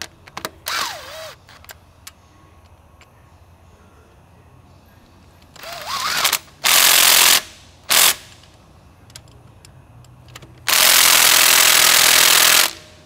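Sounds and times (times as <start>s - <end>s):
cordless power tool running: 10.7s - 12.9s.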